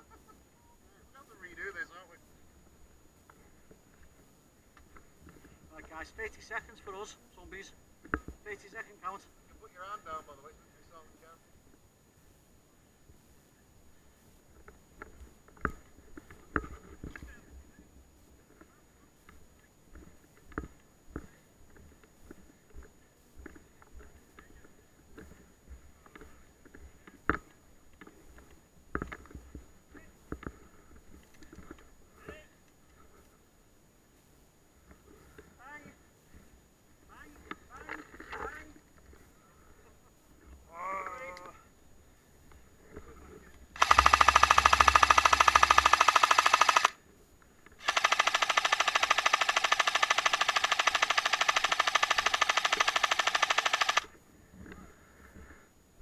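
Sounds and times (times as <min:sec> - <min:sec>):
airsoft rifle full auto bursts: 0:43.8 - 0:47.0, 0:47.8 - 0:54.1.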